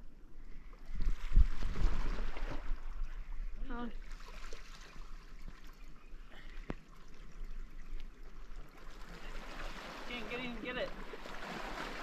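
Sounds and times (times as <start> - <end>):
water lapping on rocky shore: 3.8 - 12.0.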